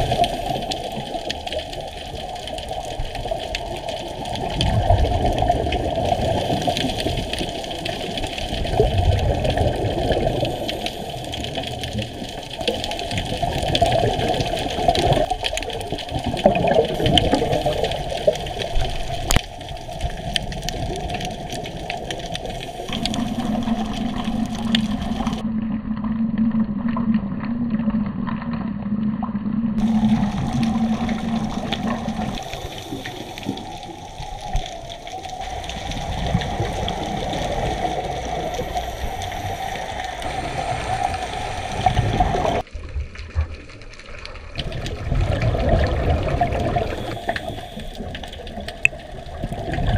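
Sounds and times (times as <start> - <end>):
muffled underwater water rush: 0.0 - 49.9
steady low hum: 35.4 - 42.7.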